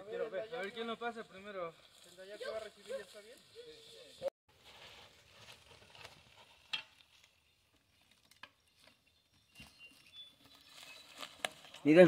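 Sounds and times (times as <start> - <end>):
bike tyres crackling over leaves: 0.1 - 12.0.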